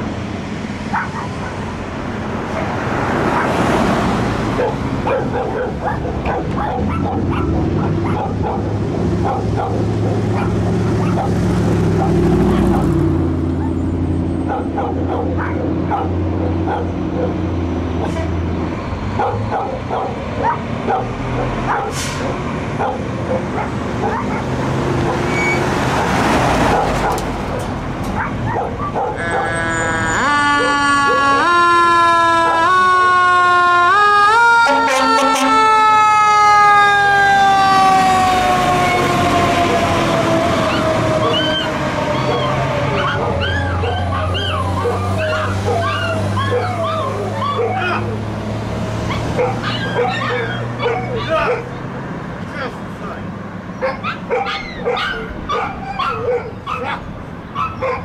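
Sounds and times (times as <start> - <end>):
diesel engine low drone: 0.0 - 53.9
fire engine siren gliding down: 28.8 - 51.6.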